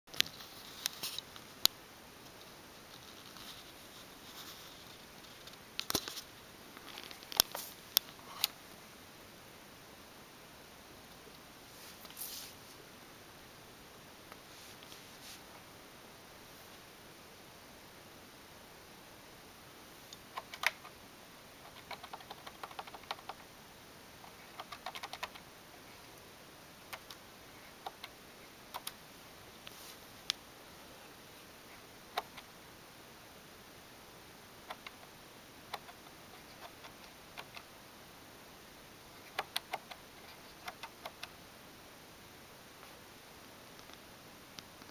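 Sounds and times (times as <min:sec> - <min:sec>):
rubber keypad clicks: 0:24.3 - 0:25.4, 0:39.2 - 0:41.3.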